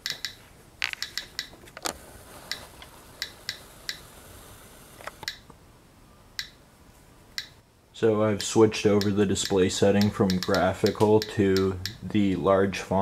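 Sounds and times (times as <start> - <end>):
geiger counter clicking: 0.0 - 1.9, 2.5 - 4.1, 5.0 - 5.6, 6.4 - 6.6, 7.3 - 7.6, 8.4 - 12.1.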